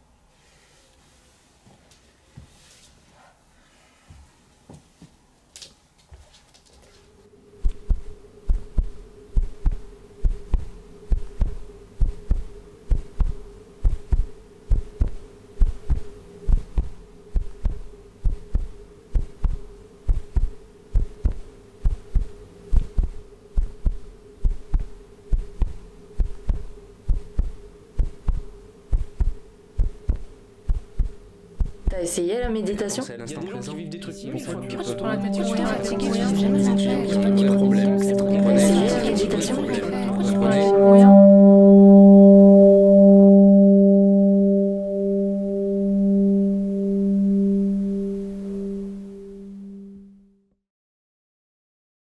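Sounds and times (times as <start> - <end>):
steady humming drone: 7.1 - 50.4
heartbeat thumps: 7.6 - 32.6.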